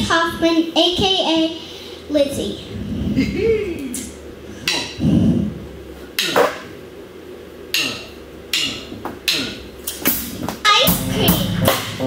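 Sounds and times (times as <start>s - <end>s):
drum kit hits: 10.1s - 12.0s.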